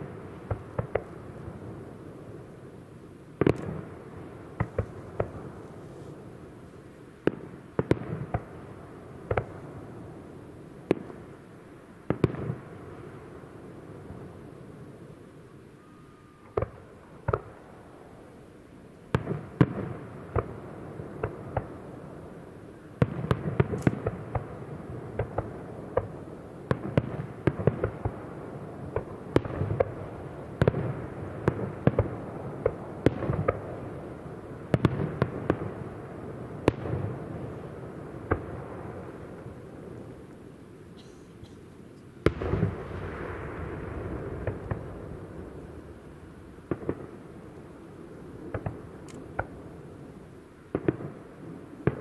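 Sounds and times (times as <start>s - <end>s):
fireworks bangs: 3.4s - 6.4s, 23.0s - 40.3s, 40.9s - 52.0s.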